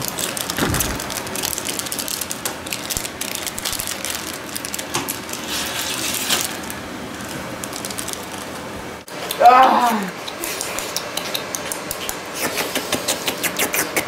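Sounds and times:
snack wrappers crinkling: 0.0 - 8.6.

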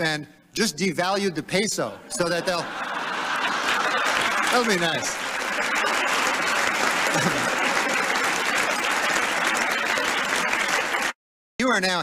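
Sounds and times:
audience laughing: 2.0 - 11.1
audience clapping: 2.7 - 11.2.

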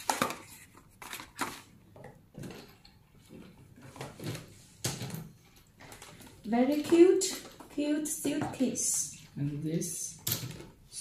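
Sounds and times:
paper boxes being handled: 0.0 - 1.7.

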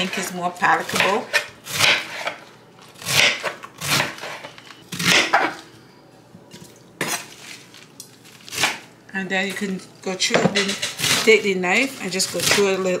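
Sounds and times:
knife cutting cabbage on board: 0.8 - 2.4.

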